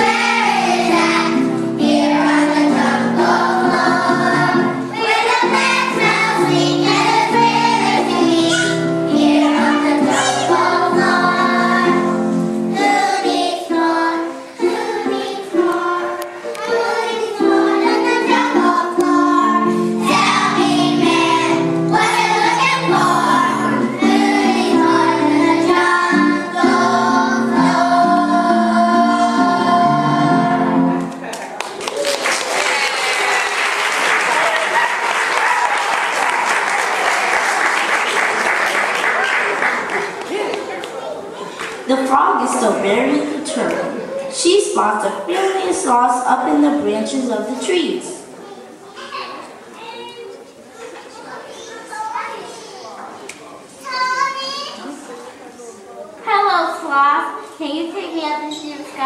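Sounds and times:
children's choir singing: 0.0s - 31.3s, 32.2s - 48.4s
instrumental accompaniment: 0.0s - 31.3s.

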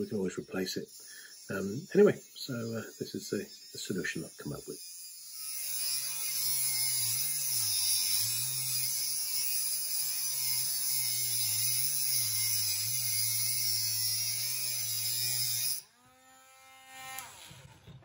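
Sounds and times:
rotary tool cutting metal: 0.0s - 18.0s.

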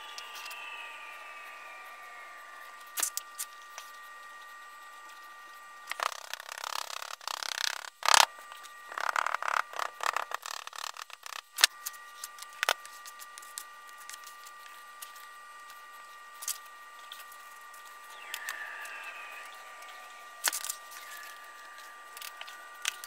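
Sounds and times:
faint high whine: 0.0s - 23.0s
sharp clicks: 18.2s - 23.0s.

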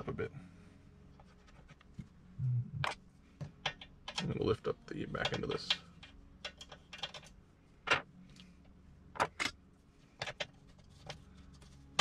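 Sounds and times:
faint steady hum: 0.0s - 12.0s
clicks and knocks of metal parts: 2.8s - 4.5s, 5.1s - 8.5s, 9.1s - 9.6s, 10.2s - 12.0s.

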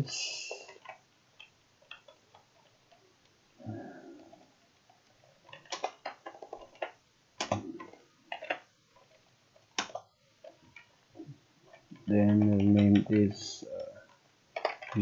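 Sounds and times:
computer keyboard keys clicking: 0.6s - 3.0s, 12.2s - 13.3s.

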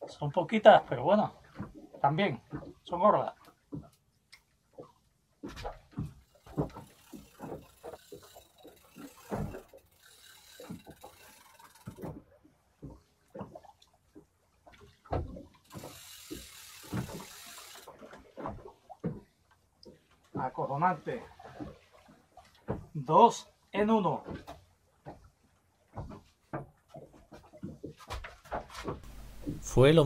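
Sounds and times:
fishing reel ratcheting clicks: 6.7s - 12.1s, 15.7s - 17.9s.

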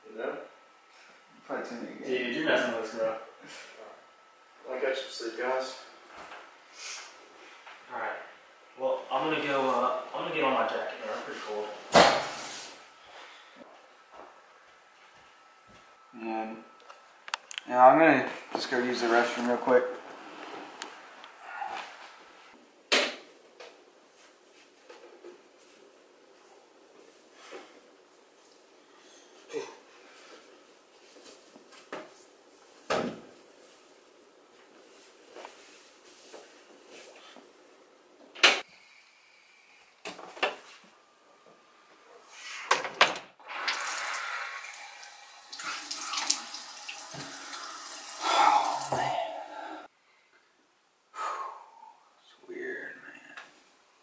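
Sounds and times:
sink tap running: 43.4s - 48.2s.

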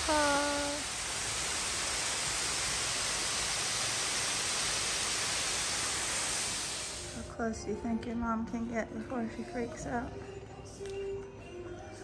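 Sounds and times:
person speaking: 0.0s - 0.8s
waterfall rushing: 0.0s - 7.2s.

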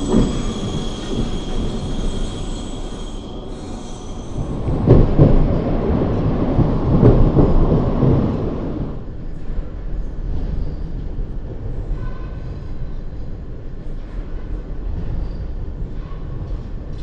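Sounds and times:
electric train passing: 0.0s - 9.2s
train wheel rumble: 0.0s - 17.0s.

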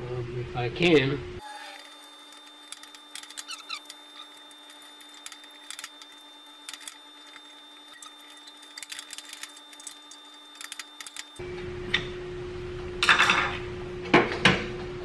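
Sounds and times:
steady hum: 0.0s - 14.3s
short squeaks: 1.5s - 9.7s.

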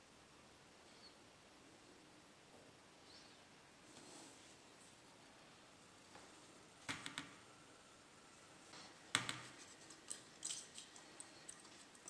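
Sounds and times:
small clicks and knocks of handling: 8.7s - 12.0s.

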